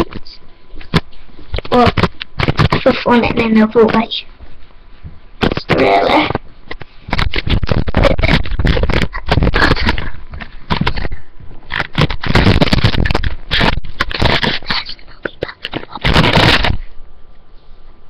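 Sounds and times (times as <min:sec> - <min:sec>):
recorder rubbing against clothing: 0:00.0 - 0:16.9.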